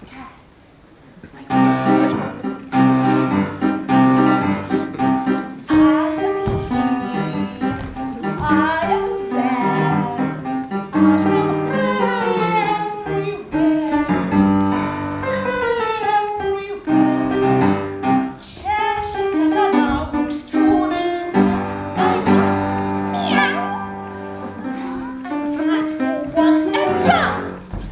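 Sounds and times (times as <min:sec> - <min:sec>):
upright piano: 0:01.3 - 0:27.9
woman singing operatically: 0:05.7 - 0:14.4, 0:18.4 - 0:22.3, 0:25.3 - 0:27.6.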